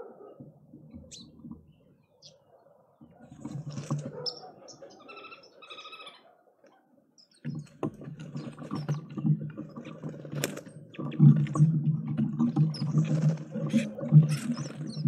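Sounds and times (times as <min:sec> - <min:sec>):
bird calls: 0:00.2 - 0:11.7, 0:12.5 - 0:15.0.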